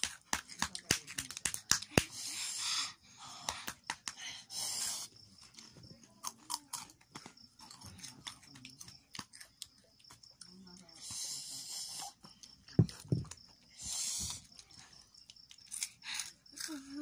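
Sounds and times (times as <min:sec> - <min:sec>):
chewing crunchy chips: 0:05.5 - 0:10.6, 0:14.5 - 0:17.0.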